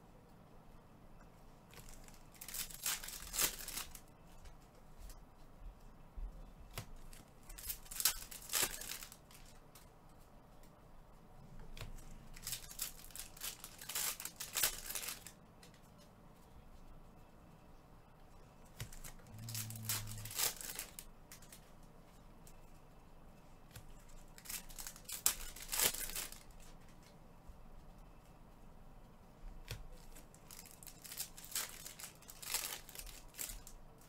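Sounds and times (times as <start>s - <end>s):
foil wrappers ripping and crinkling: 1.7s - 4.0s, 7.1s - 9.6s, 12.3s - 15.4s, 18.7s - 21.6s, 23.7s - 26.7s, 29.7s - 33.7s.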